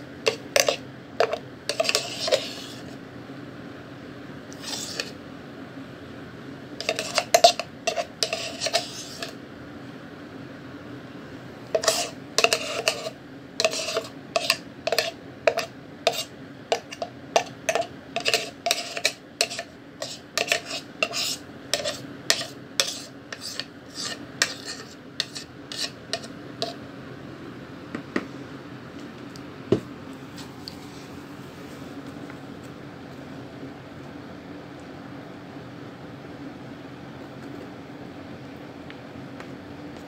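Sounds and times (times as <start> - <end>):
metal spoon scraping plastic bowl: 0.3 - 3.0, 4.5 - 5.2, 6.8 - 9.4, 11.7 - 26.8.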